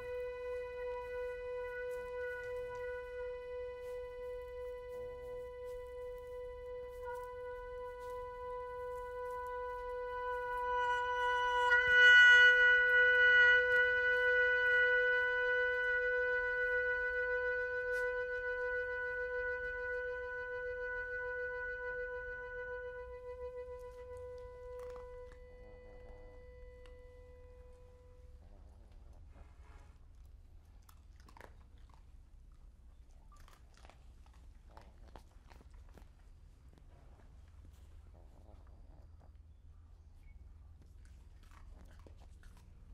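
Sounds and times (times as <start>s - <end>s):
long held musical note: 0.0s - 28.5s.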